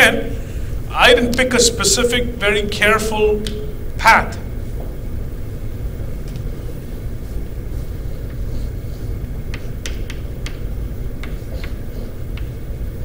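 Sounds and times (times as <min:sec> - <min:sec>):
low room rumble: 0:00.0 - 0:13.0
chalk tapping on blackboard: 0:09.5 - 0:12.6.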